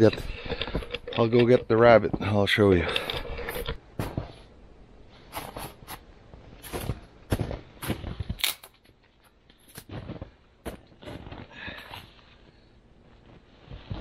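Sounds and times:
twigs rustling against clothing: 0.0 - 14.0
footsteps crunching through snow: 5.1 - 8.4, 9.6 - 14.0.

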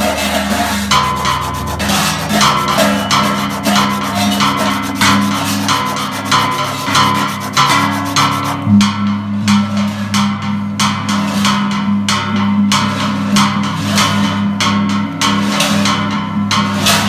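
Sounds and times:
gongs ringing: 0.0 - 9.4
sharp percussive strokes: 0.0 - 9.8.

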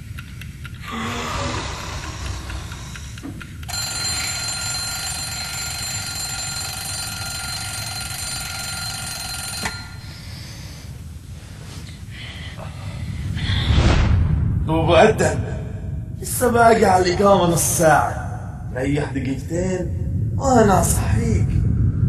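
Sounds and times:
alarm clock ringing: 3.6 - 10.7.

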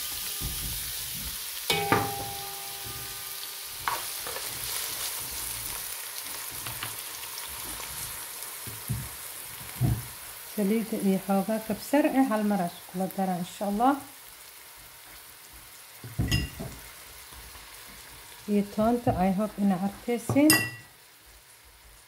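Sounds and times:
onions sizzling in hot oil: 0.0 - 22.0
sharp ringing knock: 1.7 - 3.3.

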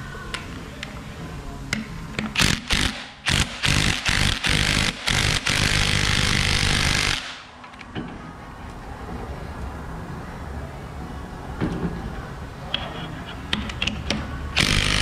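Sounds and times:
impact wrench running: 2.4 - 7.4, 14.6 - 15.0.

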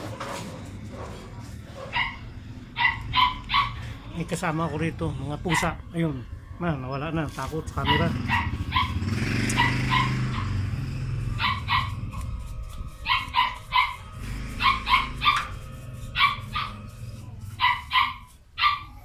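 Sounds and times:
dog barking: 0.9 - 3.9, 5.4 - 5.8, 7.8 - 10.7, 11.3 - 12.3, 13.1 - 19.0.

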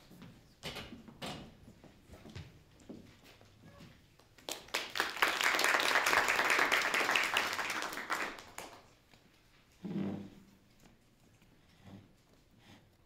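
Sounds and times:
audience applauding: 4.5 - 8.9.

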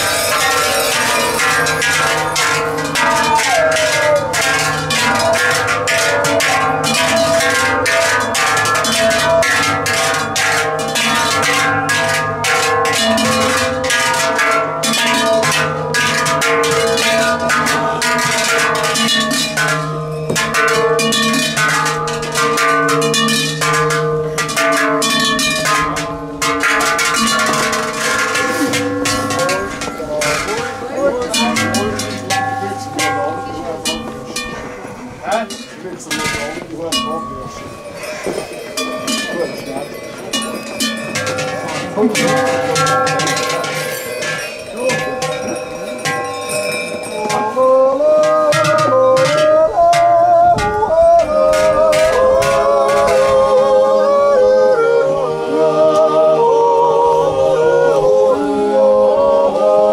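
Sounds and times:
group wordless yodelling: 0.0 - 32.0, 47.0 - 59.9
bells jingling and clanking: 0.0 - 56.2.

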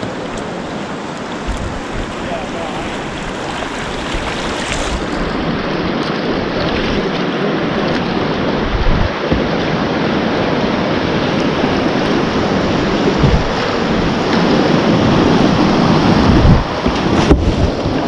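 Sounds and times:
river rapids rushing: 0.0 - 18.0
wind on microphone: 0.0 - 18.0
low thumps: 12.7 - 14.5.

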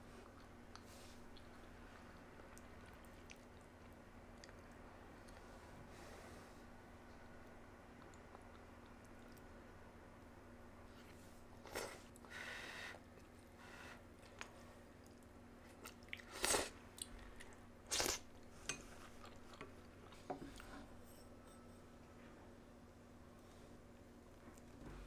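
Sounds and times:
quiet chewing: 0.0 - 5.8, 7.0 - 9.6, 13.0 - 21.0.

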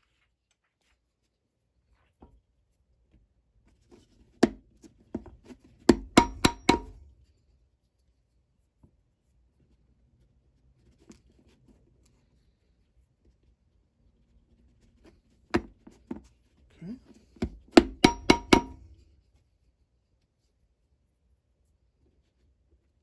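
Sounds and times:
hammer strikes on boot: 4.4 - 4.6, 5.9 - 7.0, 17.4 - 18.8.

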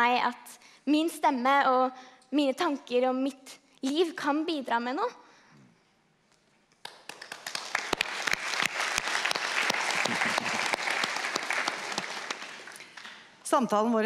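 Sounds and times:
audience applauding: 6.8 - 13.3.

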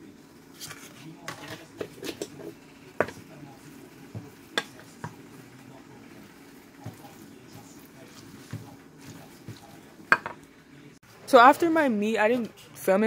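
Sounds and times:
utensil knocking on steel bowl: 8.5 - 10.4.

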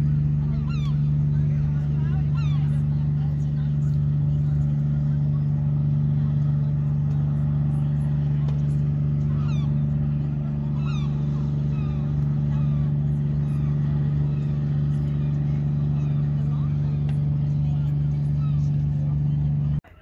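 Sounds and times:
engine drone: 0.0 - 20.0
gull calls: 0.1 - 3.7, 7.8 - 19.0.

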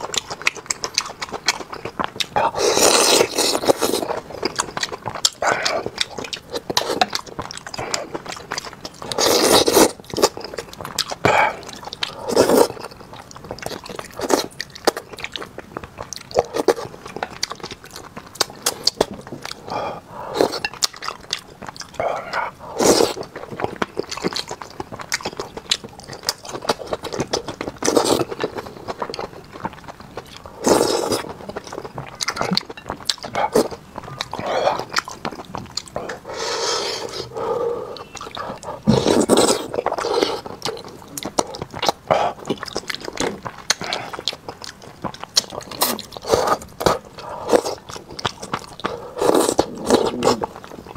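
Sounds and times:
man chewing food: 0.0 - 50.9
loud mouth noises: 48.5 - 50.9.

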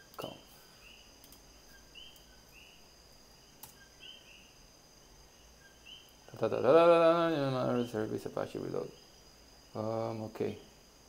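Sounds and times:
faint high chirps: 0.0 - 10.8
steady hiss: 0.0 - 11.0.

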